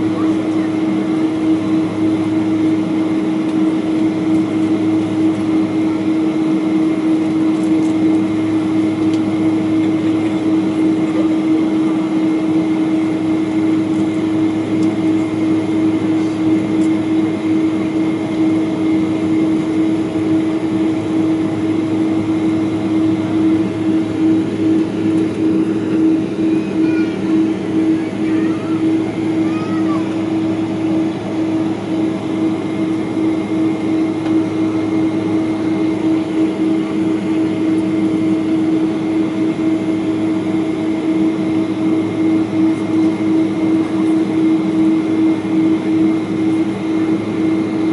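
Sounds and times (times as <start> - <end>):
jet engines idling drone: 0.0 - 47.9.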